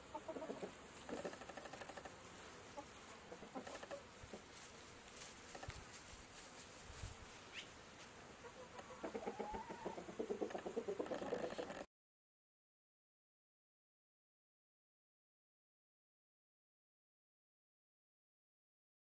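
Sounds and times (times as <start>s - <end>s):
chickens clucking: 0.0s - 4.6s, 8.3s - 11.9s.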